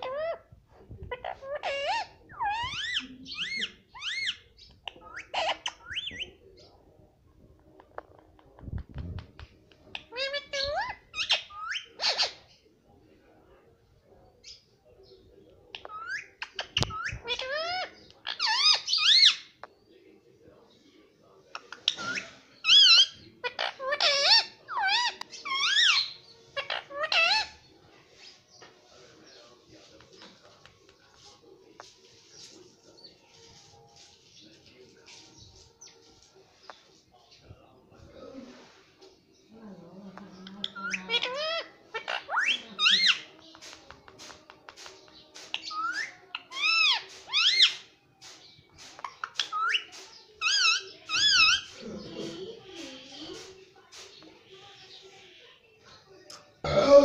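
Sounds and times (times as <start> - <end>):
parakeet calling: 40.6 - 43.3, 45.1 - 47.9, 49.0 - 51.8.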